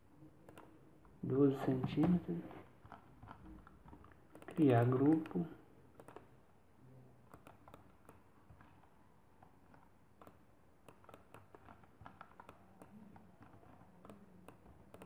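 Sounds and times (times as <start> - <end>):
mouse and keyboard clicks: 0.4 - 0.7, 2.8 - 6.3, 7.3 - 15.0.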